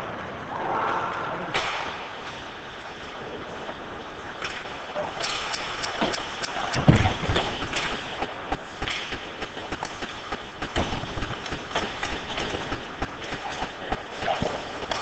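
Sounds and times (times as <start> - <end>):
sticks and skates clacking: 1.5 - 15.0.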